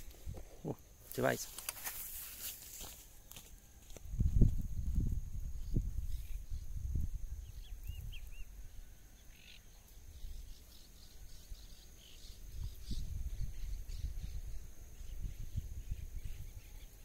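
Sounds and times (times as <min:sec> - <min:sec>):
wind rumbling on microphone: 0:04.0 - 0:08.9, 0:12.3 - 0:17.0
small birds chirping: 0:05.6 - 0:17.0.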